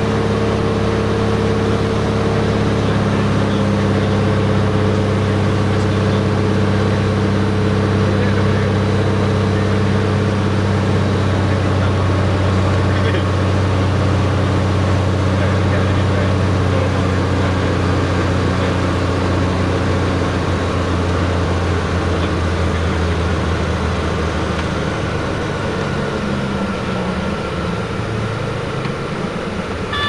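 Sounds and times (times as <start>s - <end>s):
aircraft engine and propeller droning: 0.0s - 30.0s.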